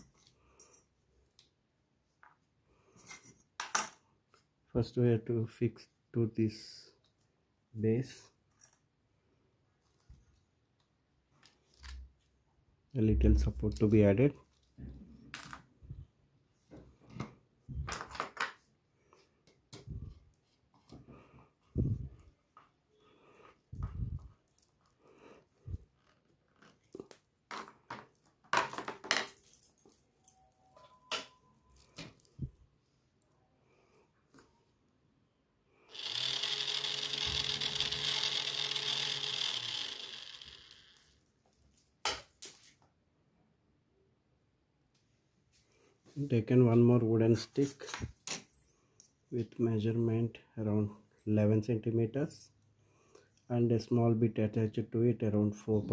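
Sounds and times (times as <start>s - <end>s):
small geared motor whirring: 35.9s - 41.2s.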